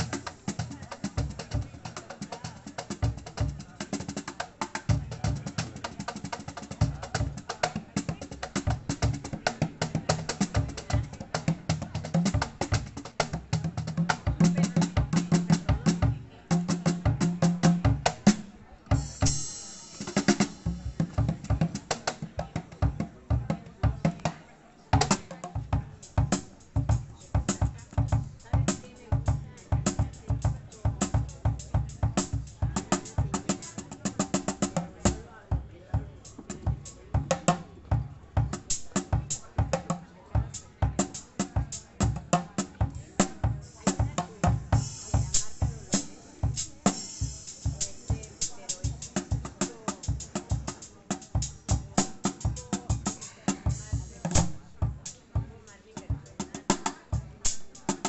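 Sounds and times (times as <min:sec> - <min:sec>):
cajon drum groove: 0:00.0 - 0:58.0
brush strokes on cajon: 0:43.1 - 0:55.8.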